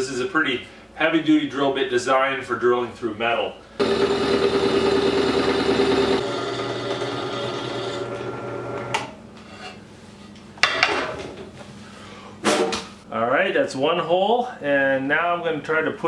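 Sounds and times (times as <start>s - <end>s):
drill press cutting steel pipe: 3.8s - 9.0s.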